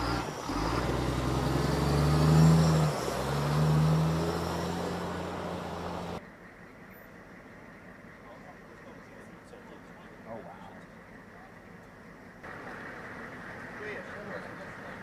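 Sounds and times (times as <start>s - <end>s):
truck diesel engine revving: 0.0s - 6.2s.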